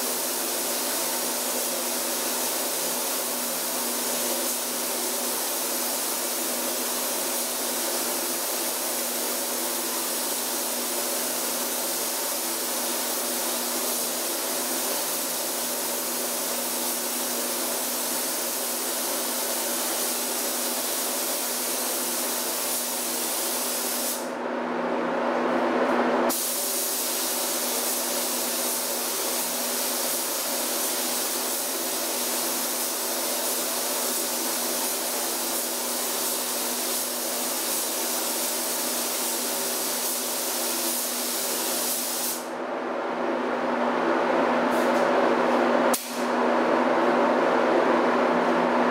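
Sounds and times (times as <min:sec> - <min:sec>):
spray gun hissing: 0:00.0 - 0:24.3, 0:26.3 - 0:42.5.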